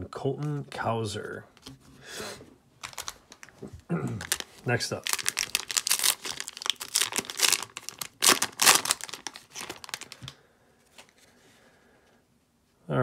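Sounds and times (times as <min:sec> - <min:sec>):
wrapper tearing and crinkling: 0:02.8 - 0:10.3.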